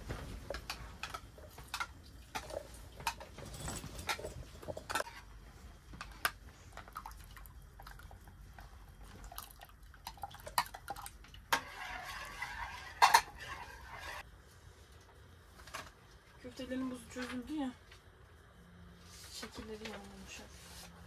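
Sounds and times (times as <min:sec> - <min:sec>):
metal spoon stirring soup in pot: 0:09.4 - 0:14.3.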